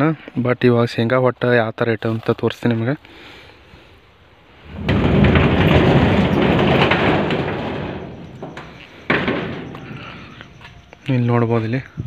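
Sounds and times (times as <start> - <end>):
corrugated metal sheet rattling: 4.5 - 11.6.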